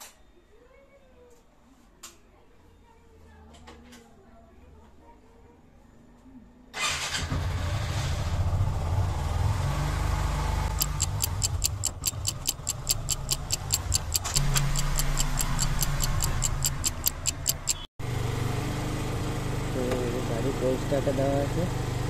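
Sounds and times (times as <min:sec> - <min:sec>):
motorcycle engine running: 0:08.5 - 0:22.0
fast clock ticking: 0:10.7 - 0:17.9.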